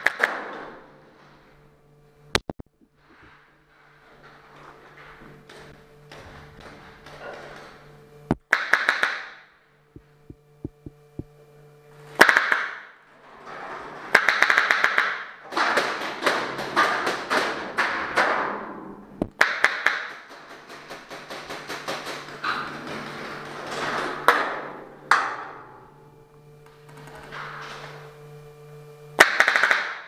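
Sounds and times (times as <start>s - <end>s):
rapid paintball gun shots: 0.0s - 0.5s, 8.4s - 9.5s, 12.2s - 12.9s, 14.2s - 18.5s, 19.3s - 22.4s, 29.2s - 30.0s
paintball impacts: 8.3s - 9.4s, 29.2s - 30.0s.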